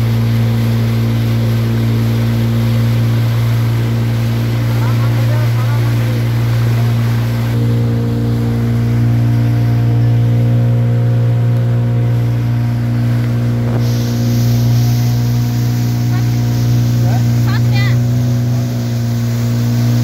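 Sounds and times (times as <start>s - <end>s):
motorboat engine humming: 0.0s - 20.0s
hiss: 13.7s - 17.3s.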